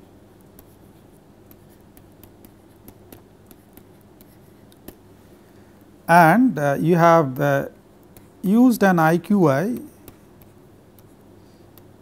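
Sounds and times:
low steady hum: 0.0 - 12.0
stylus tapping on tablet: 0.4 - 5.1, 9.6 - 12.0.

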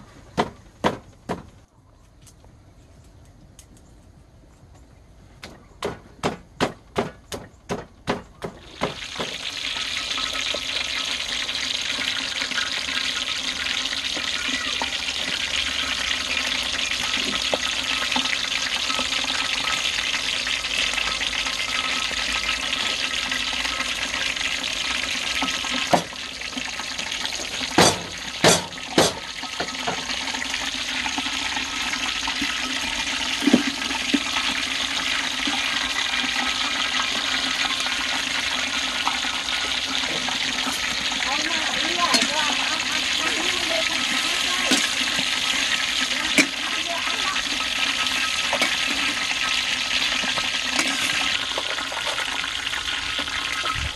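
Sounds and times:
pestle pounding in stone mortar: 0.3 - 1.5, 5.8 - 9.4, 27.7 - 29.7
paste sizzling in hot oil: 8.6 - 53.9
metal ladle knocking on pan: 27.7 - 30.1, 46.3 - 46.7.

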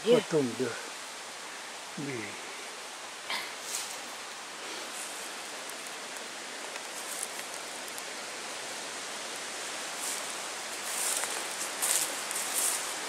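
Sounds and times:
forest ambience hiss: 0.0 - 13.0
faint crackles: 3.2 - 8.4, 9.3 - 13.0.

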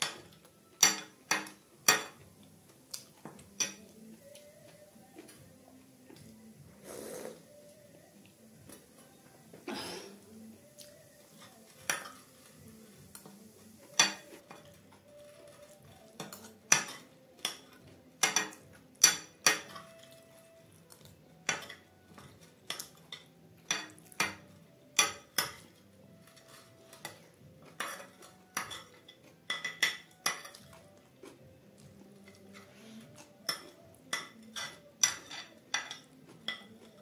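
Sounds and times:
steel spoon clinking on a plate: 0.0 - 2.2, 14.0 - 20.5, 21.4 - 30.8, 32.2 - 37.0.

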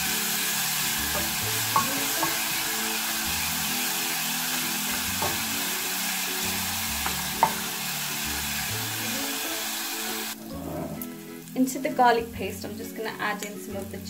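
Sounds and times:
paste sizzling in hot oil: 0.0 - 10.4
wooden spoon knocking pan: 1.1 - 2.6, 5.1 - 5.6, 7.0 - 7.7.

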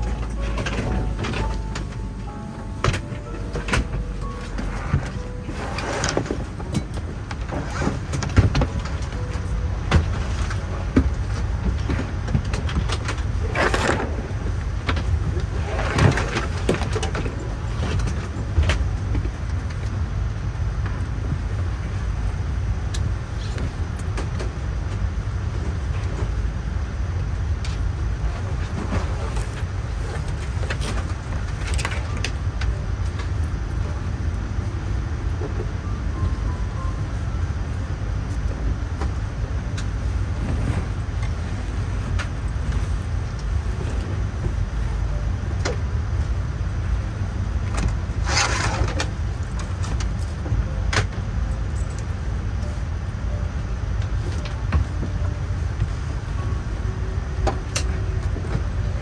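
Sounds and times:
vehicle rumble: 0.0 - 59.0.

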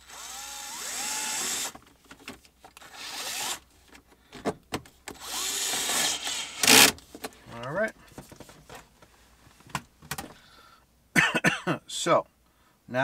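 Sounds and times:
electric screwdriver running: 0.0 - 1.8, 2.8 - 3.6, 5.2 - 7.0.

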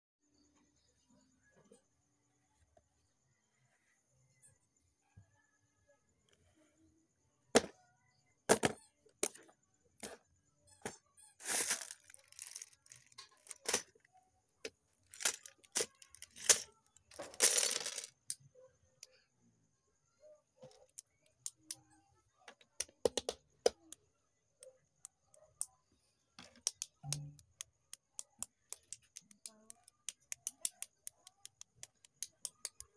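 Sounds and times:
plastic bag crinkling: 11.4 - 13.7
plastic bricks clicking together: 11.4 - 13.9, 15.1 - 18.4, 26.4 - 32.9
packaging clicks and taps: 22.5 - 24.0, 26.4 - 32.9.

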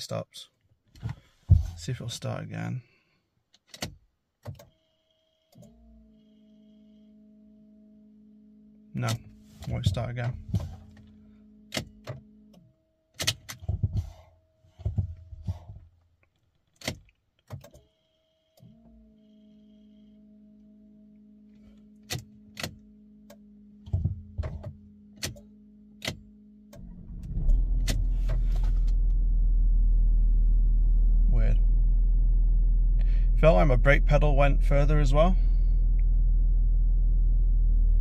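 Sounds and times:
electrical hum: 17.9 - 38.0
diesel engine starting and running: 18.6 - 38.0.

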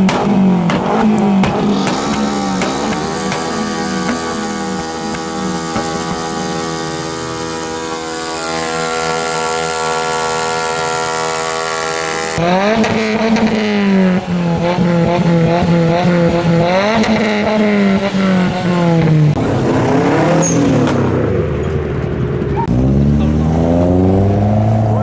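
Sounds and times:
car engine revving: 0.0 - 25.0
steady droning tone: 2.1 - 12.4.

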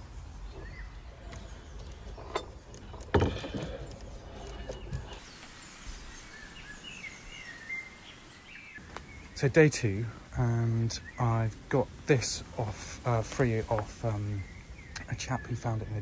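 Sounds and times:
faint birdsong: 0.0 - 16.0
metal bicycle parts clicking: 1.3 - 5.2.

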